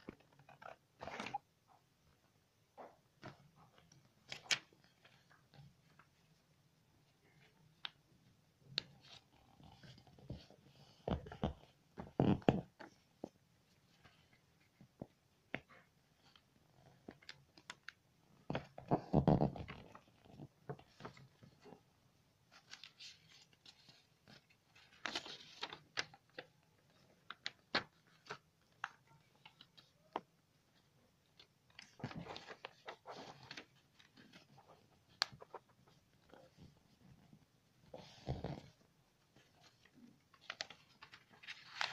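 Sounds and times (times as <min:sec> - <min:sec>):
paper crackling: 0:22.5 - 0:29.9, 0:31.4 - 0:36.6, 0:39.4 - 0:41.9
paper rustling and crinkling: 0:22.5 - 0:37.0, 0:38.6 - 0:41.9.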